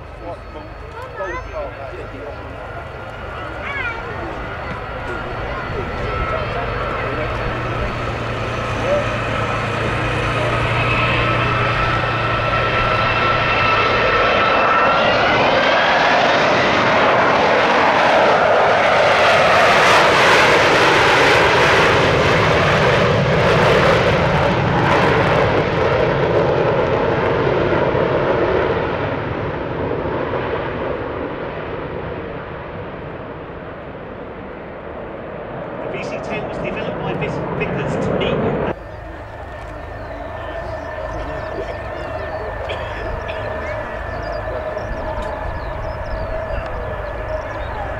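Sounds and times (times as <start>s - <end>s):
jet engines whining: 0.0s - 47.9s
loud jet noise: 0.0s - 47.9s.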